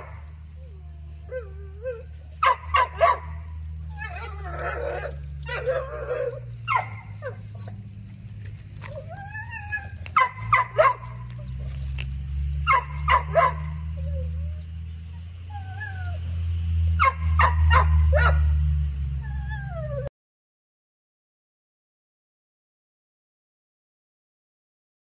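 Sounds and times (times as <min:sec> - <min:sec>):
dog whining: 0:00.6 - 0:07.8, 0:08.8 - 0:16.3
dog barking: 0:02.4 - 0:04.0, 0:04.6 - 0:07.5, 0:10.1 - 0:11.4, 0:12.6 - 0:14.1, 0:17.0 - 0:18.6.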